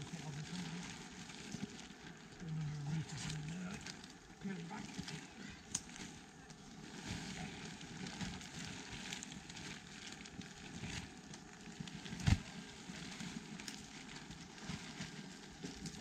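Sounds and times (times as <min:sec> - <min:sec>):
crackling and rustling: 0:00.0 - 0:16.0.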